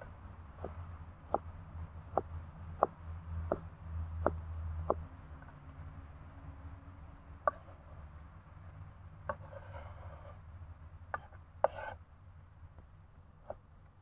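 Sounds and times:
knife chopping on wooden board: 0:02.2 - 0:03.6, 0:11.2 - 0:12.0.

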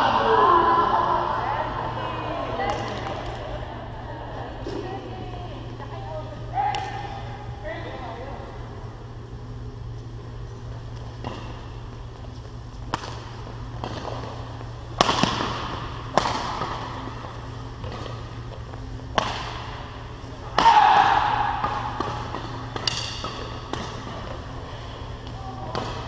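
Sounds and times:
rackets striking shuttlecock: 0:12.9 - 0:14.3, 0:14.9 - 0:17.0, 0:19.1 - 0:19.9, 0:20.5 - 0:24.4.

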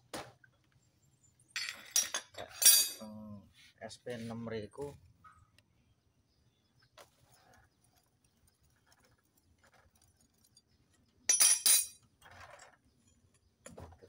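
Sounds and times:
socket wrench clinking on metal: 0:11.3 - 0:12.0.

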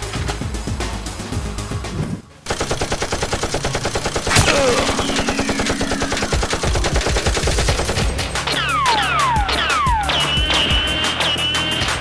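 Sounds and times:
rapid automatic gunfire: 0:02.4 - 0:09.4
sharp crack: 0:03.5 - 0:08.6.

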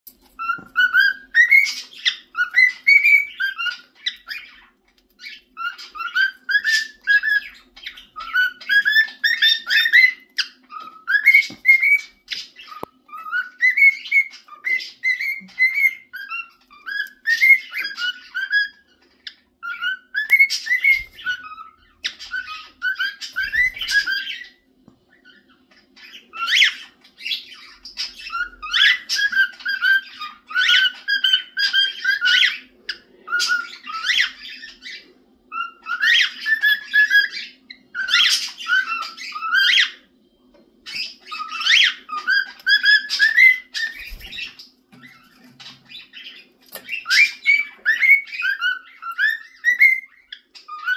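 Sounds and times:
cockatiel whistling a tune: 0:00.3 - 0:50.9.

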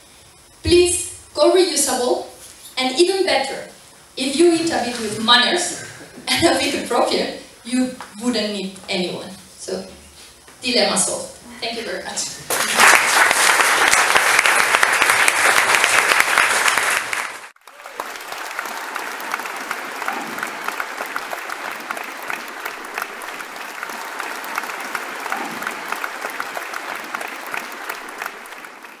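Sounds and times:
audience applauding: 0:12.5 - 0:29.0.

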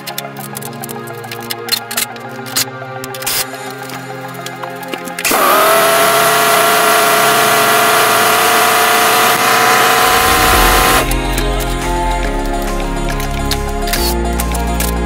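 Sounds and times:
steady whine: 0:04.8 - 0:13.8.

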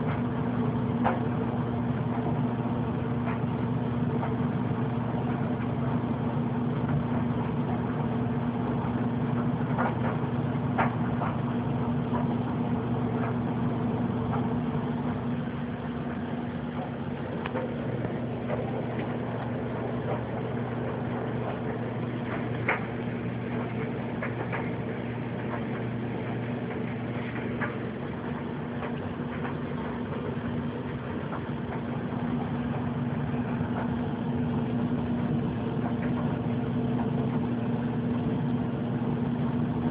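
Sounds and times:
steady low hum: 0:00.0 - 0:39.9.

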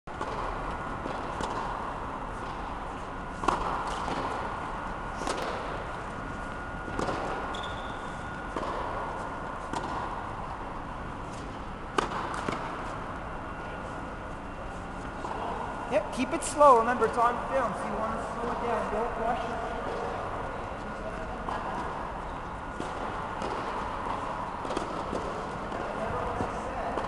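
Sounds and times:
tennis ball bouncing on court: 0:00.1 - 0:02.7, 0:03.4 - 0:06.0, 0:06.9 - 0:10.3, 0:11.3 - 0:13.0, 0:22.7 - 0:27.0
steady hum: 0:00.1 - 0:27.0
racket striking ball: 0:00.2 - 0:02.6, 0:03.4 - 0:04.5, 0:05.2 - 0:05.9, 0:06.9 - 0:10.3, 0:11.3 - 0:12.9, 0:22.7 - 0:25.9.

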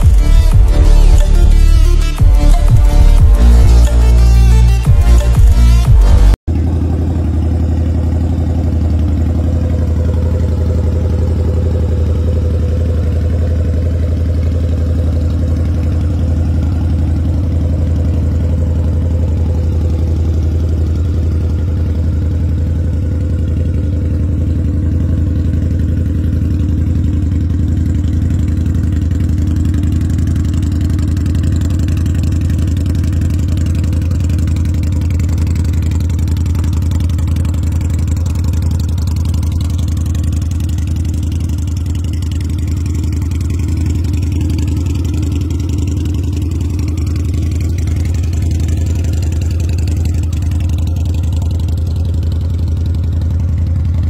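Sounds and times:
motorcycle engine idling: 0:00.0 - 0:54.0.

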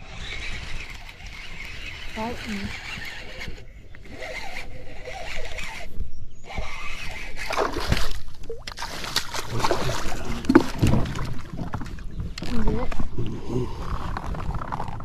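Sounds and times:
water splashing and sloshing: 0:06.6 - 0:15.0.

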